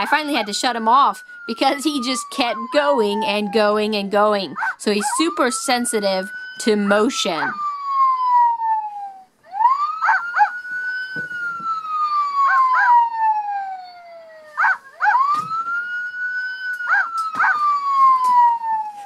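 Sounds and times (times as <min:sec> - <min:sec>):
electronic police siren wail: 0:00.0 - 0:19.0
electronic dog barks: 0:04.5 - 0:04.8, 0:10.0 - 0:10.6, 0:12.4 - 0:13.1, 0:14.6 - 0:15.4, 0:16.8 - 0:17.7.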